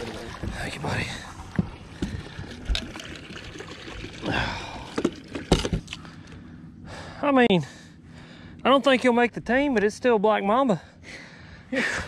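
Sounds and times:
water trickling and dripping: 0.0s - 5.5s.

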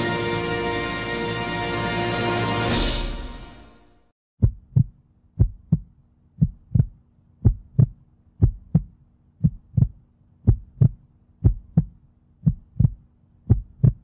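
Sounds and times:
theme music: 0.0s - 4.1s
heartbeat thumps: 4.4s - 14.0s.

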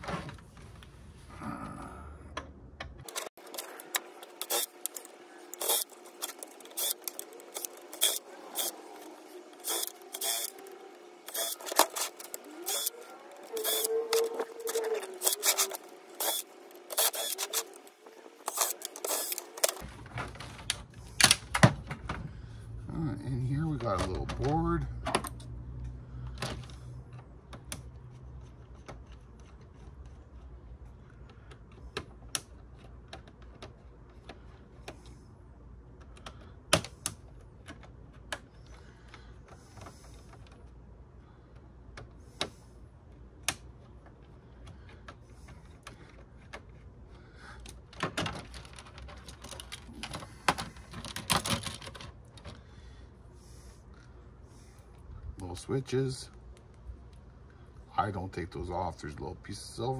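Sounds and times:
plastic parts and screws rattling: 2.8s - 22.2s, 43.4s - 52.7s.

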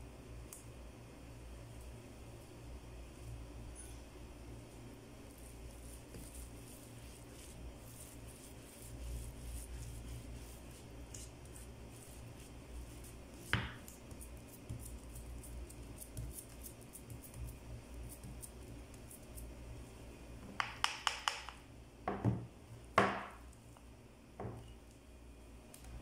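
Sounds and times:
baking tray knocking: 23.0s - 23.4s.

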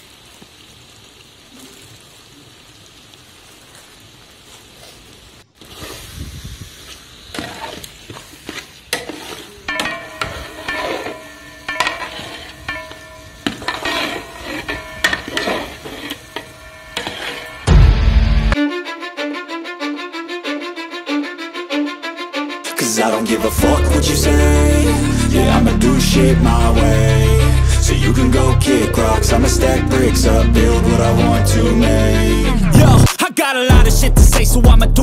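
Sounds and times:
food sizzling: 0.0s - 18.6s, 22.8s - 34.6s
ladle scraping metal pot: 7.2s - 17.7s.

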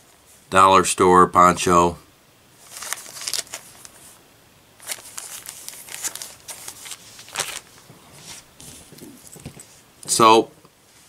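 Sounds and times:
plastic packet crinkling: 2.6s - 4.0s, 4.8s - 7.9s.

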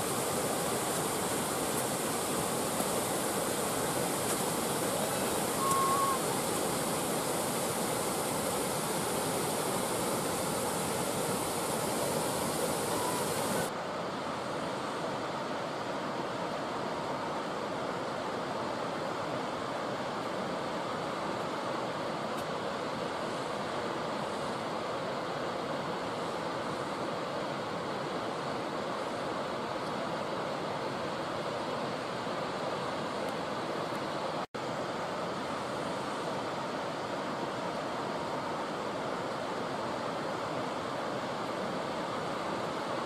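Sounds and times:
waterfall roaring: 0.0s - 43.0s
faint high note: 5.5s - 6.3s.

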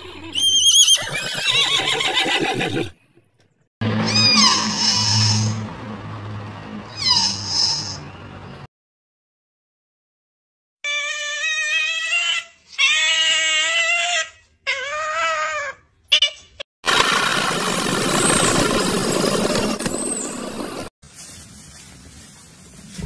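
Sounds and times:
high-pitched animal calls: 0.0s - 2.9s, 4.0s - 5.6s, 6.9s - 8.0s.

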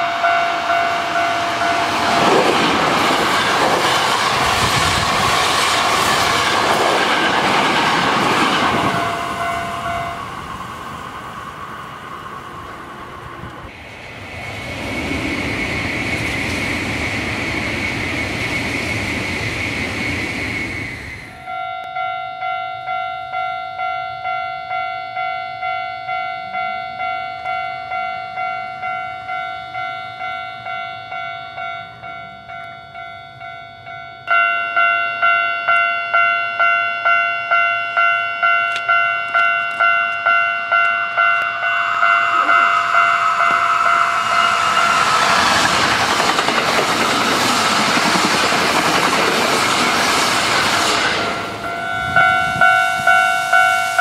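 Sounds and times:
level crossing warning bell: 0.0s - 4.0s, 7.0s - 10.8s, 21.4s - 45.5s, 51.2s - 54.0s
electric train passing: 0.0s - 54.0s.

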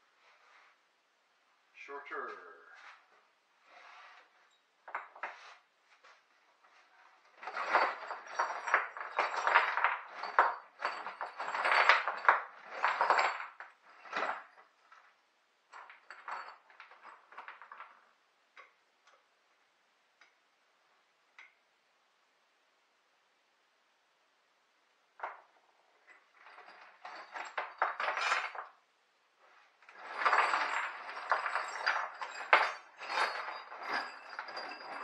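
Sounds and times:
metal clinking and scraping: 2.8s - 18.2s, 25.2s - 28.8s, 29.4s - 35.0s.

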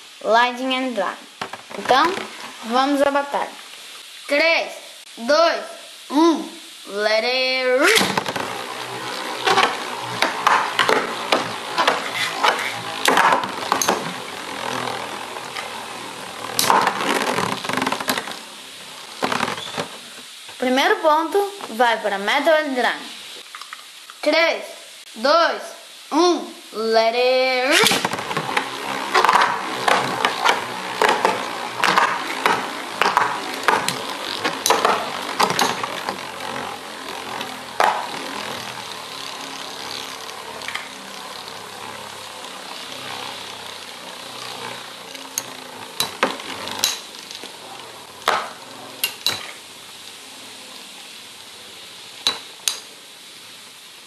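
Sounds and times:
spinning tops whirring: 0.0s - 5.3s, 6.8s - 24.2s, 26.8s - 54.0s
metal tops clacking: 27.7s - 49.7s, 52.2s - 53.0s.

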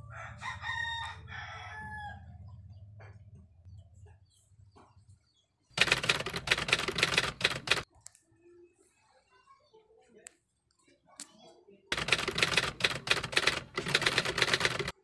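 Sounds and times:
rooster crowing: 0.0s - 2.3s
rapid keyboard typing: 5.8s - 7.9s, 11.9s - 15.0s.

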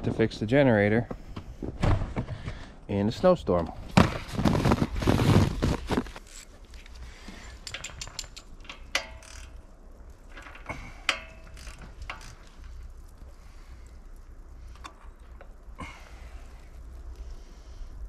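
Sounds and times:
hand tools clinking on metal: 7.2s - 9.5s.

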